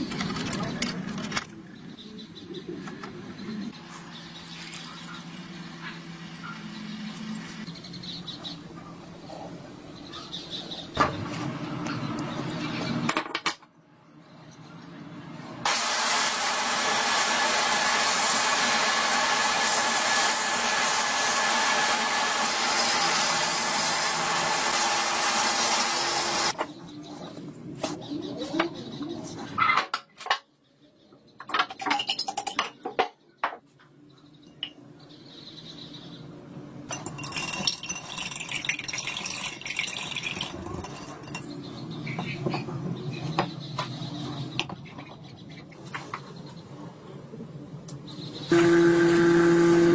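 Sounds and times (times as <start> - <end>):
sandblaster hissing: 15.7 - 26.6.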